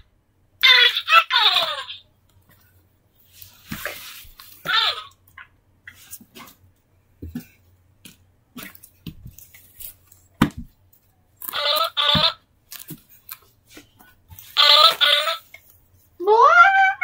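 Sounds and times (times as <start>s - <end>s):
high wavering vocal squeals: 16.2s - 17.0s.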